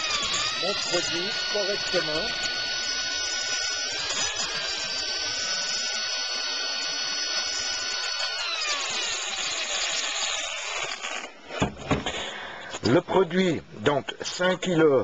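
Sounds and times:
drill whining with paddle mixer: 0.0s - 11.4s.

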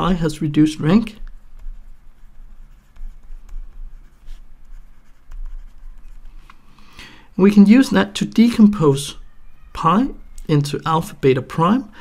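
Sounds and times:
stylus scratching on tablet screen: 0.0s - 6.5s.

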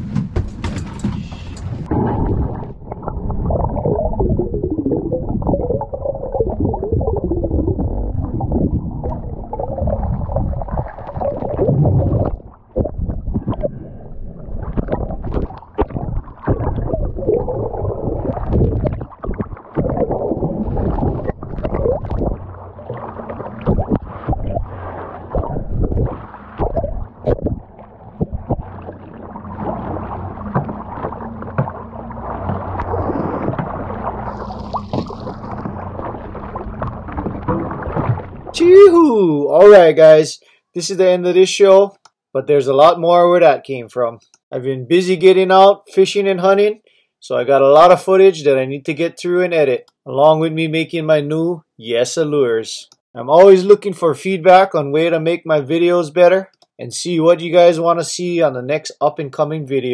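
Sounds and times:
knocks and splashes: 0.0s - 38.6s
water sloshing and gurgling: 0.0s - 38.9s.

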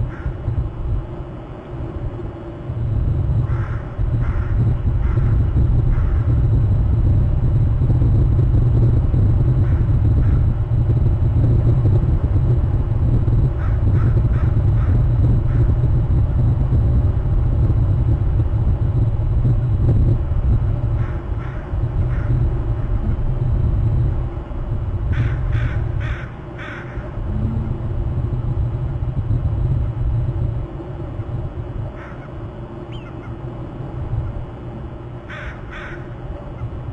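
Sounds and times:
wind buffeting microphone: 0.0s - 36.9s
short bird calls: 32.0s - 33.4s.

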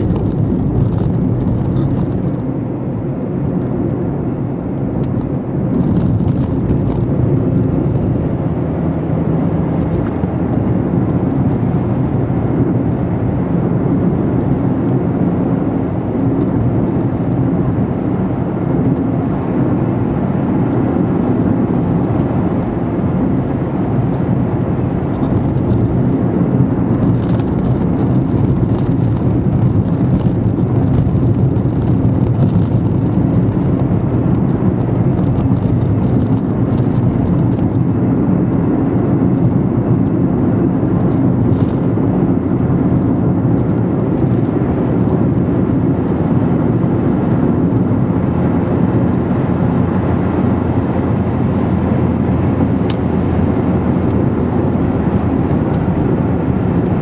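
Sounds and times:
car engine and tyre noise: 0.0s - 57.0s.

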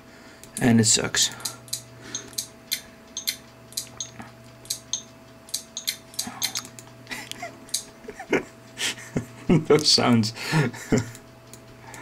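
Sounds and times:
faint steady hum: 0.0s - 12.0s
laptop clicking and ticking: 1.4s - 6.9s, 7.7s - 7.9s.

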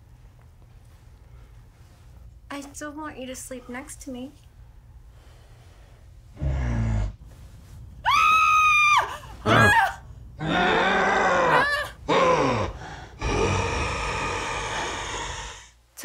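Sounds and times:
low groan: 6.4s - 7.2s, 9.1s - 15.8s
woman and man screaming: 8.0s - 10.0s.

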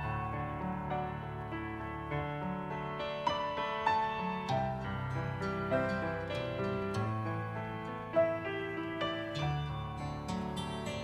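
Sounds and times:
soft keyboard chords: 0.0s - 11.0s.

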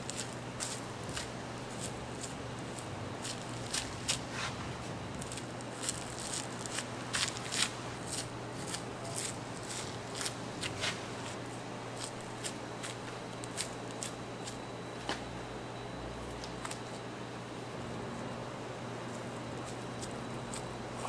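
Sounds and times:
knife slicing raw meat: 0.0s - 4.6s
steady low hum: 0.0s - 21.0s.

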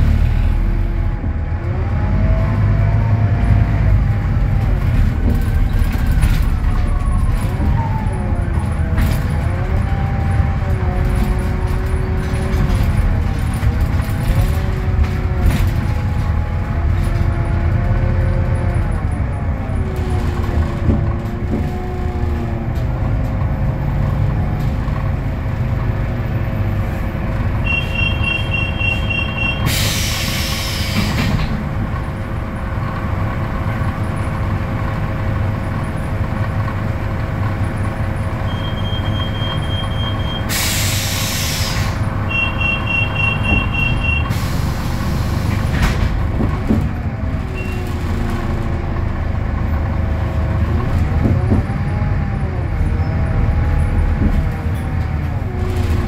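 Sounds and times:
bus diesel engine running: 0.0s - 56.0s
two-tone electronic beep: 27.7s - 29.7s, 42.3s - 44.3s
compressed air hiss: 40.5s - 42.0s.

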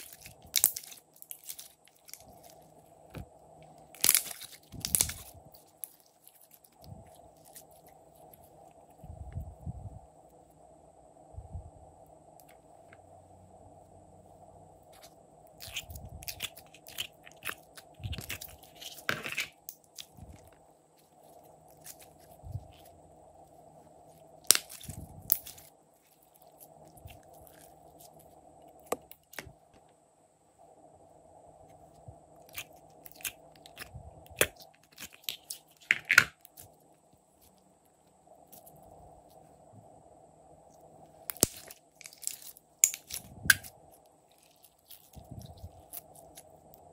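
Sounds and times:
slime crackling and popping: 0.0s - 2.6s, 3.8s - 8.0s, 15.6s - 20.5s, 24.4s - 28.2s, 32.4s - 36.7s, 41.3s - 43.7s
faint steady hum: 0.0s - 46.9s.

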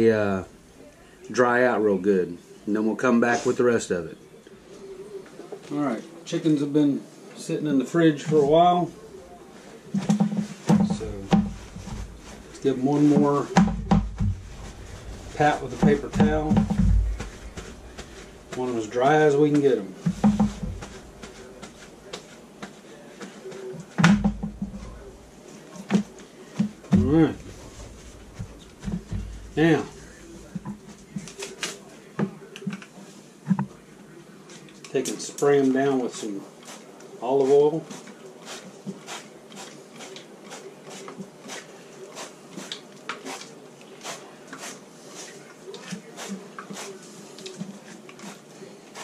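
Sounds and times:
paper towel dabbing chicken: 8.1s - 32.1s, 34.5s - 49.0s.

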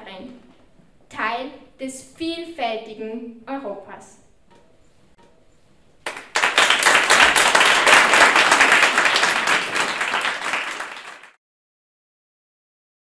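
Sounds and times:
audience applauding: 6.1s - 11.4s.

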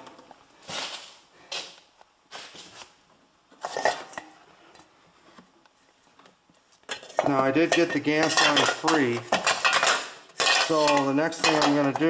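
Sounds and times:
metal can being handled: 6.9s - 12.0s
metal tools clattering: 6.9s - 12.0s.

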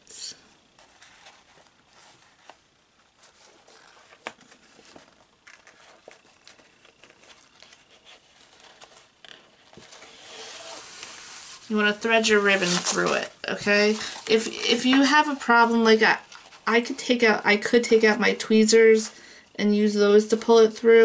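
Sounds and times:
paper rustling and clicking: 3.2s - 10.0s.

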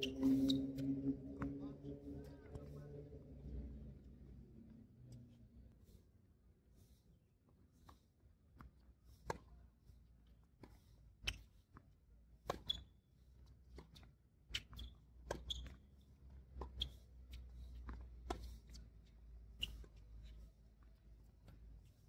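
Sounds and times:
shoes squeaking on court: 0.0s - 0.8s, 12.5s - 13.0s, 13.8s - 16.0s, 19.6s - 20.5s
tennis ball bouncing: 12.4s - 12.8s.

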